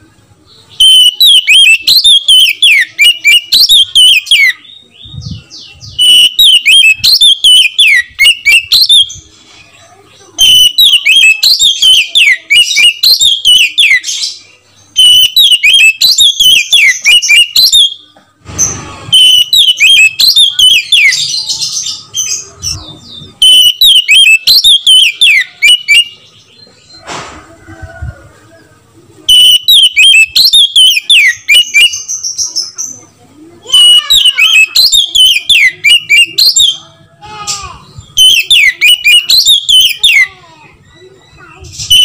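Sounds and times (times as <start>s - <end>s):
bird singing whistles and trills: 0.6s - 9.3s, 10.4s - 18.1s, 19.1s - 27.1s, 29.3s - 32.9s, 33.7s - 36.8s, 37.9s - 42.0s.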